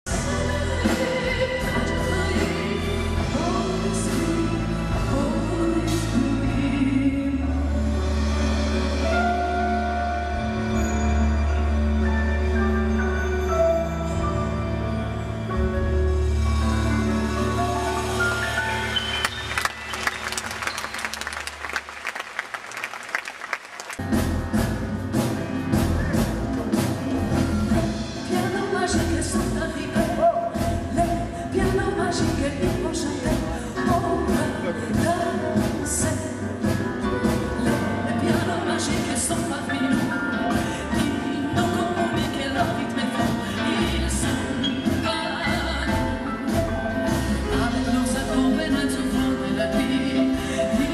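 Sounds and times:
double bass: 0:00.1 - 0:21.2, 0:24.0 - 0:50.9
grand piano: 0:00.1 - 0:50.9
audience applause: 0:18.0 - 0:24.0.

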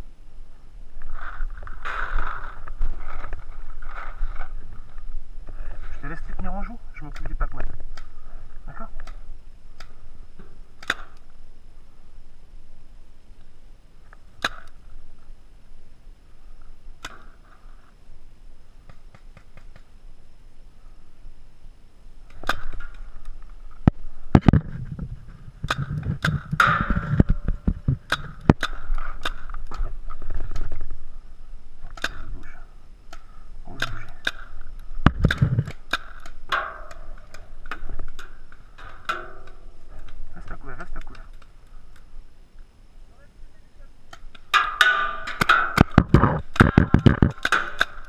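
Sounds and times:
paintball marker shots: 0:10.8 - 0:11.2.

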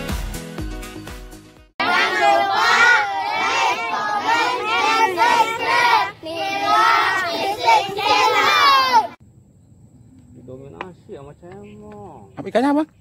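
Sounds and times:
boys chanting together: 0:01.8 - 0:09.2.

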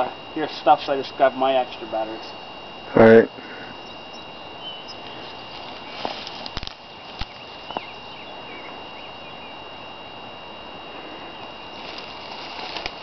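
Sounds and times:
steady hiss: 0:00.0 - 0:08.6, 0:10.2 - 0:13.0
faint high whine: 0:00.0 - 0:13.0
faint chirps: 0:03.4 - 0:10.1.

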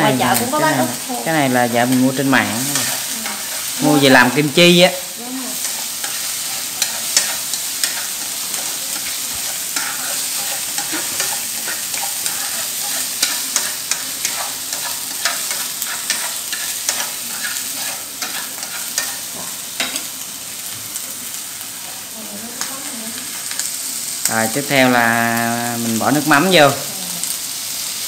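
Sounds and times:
meat sizzling in a frying pan: 0:00.0 - 0:28.0.

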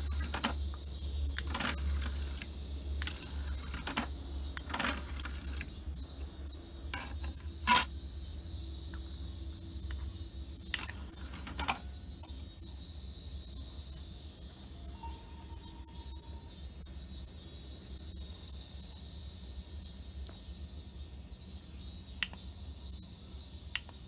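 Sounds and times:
disc tray mechanism moving: 0:00.0 - 0:05.9, 0:06.9 - 0:07.9, 0:10.8 - 0:11.9.

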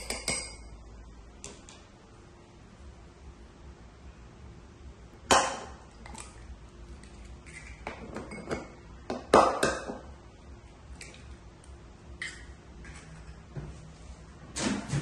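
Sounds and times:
egg cracked against ceramic bowl: 0:12.2 - 0:12.5.

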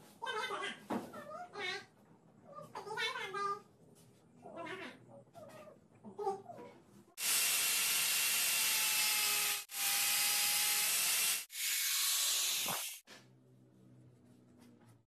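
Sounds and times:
angle grinder cutting pipe: 0:07.2 - 0:13.0.

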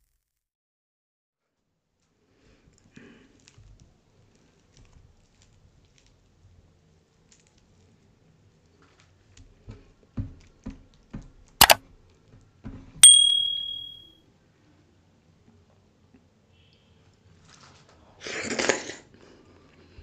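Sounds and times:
ringing ding: 0:13.0 - 0:14.0
tableware sharp clack: 0:13.0 - 0:14.0.

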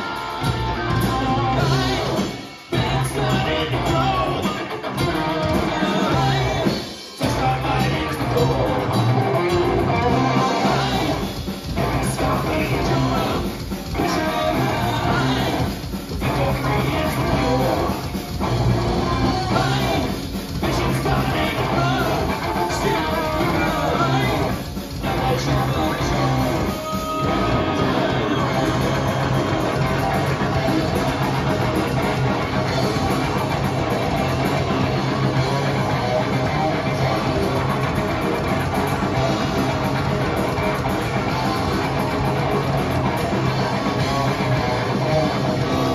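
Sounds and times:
person singing: 0:00.0 - 0:18.1, 0:18.8 - 0:31.0
bass guitar: 0:00.0 - 0:45.9
drums: 0:00.0 - 0:45.9
electric guitar: 0:00.0 - 0:45.9.

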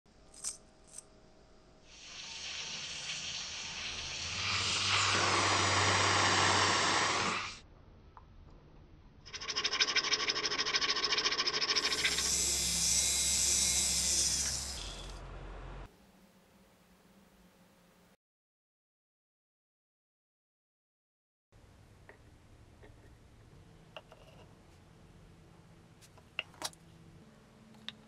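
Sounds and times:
fast-pulsing hiss: 0:01.9 - 0:07.6, 0:09.3 - 0:15.2
low hum: 0:14.6 - 0:18.1.

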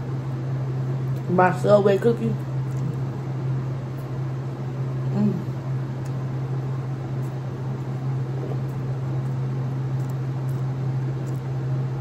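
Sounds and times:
fan humming and rushing: 0:00.0 - 0:12.0.

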